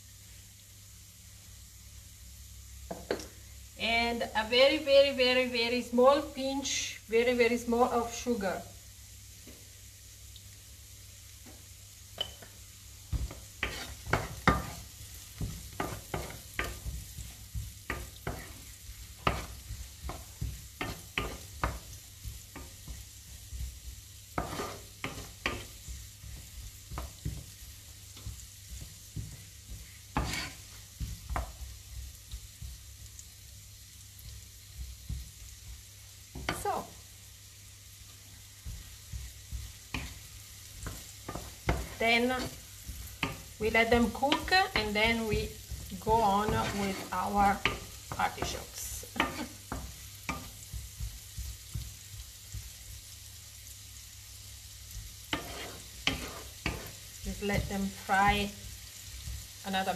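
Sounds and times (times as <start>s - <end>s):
vegetables sizzling in a pan: 0.0s - 59.9s
wooden spoon scraping a pan: 11.4s - 37.2s, 37.9s - 53.2s, 54.6s - 59.9s.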